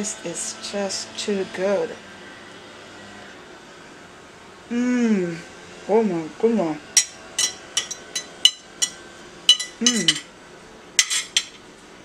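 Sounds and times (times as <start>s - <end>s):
voice humming: 4.7s - 5.5s, 9.8s - 10.3s
cutlery clinking on plate: 7.0s - 10.3s, 11.0s - 11.6s.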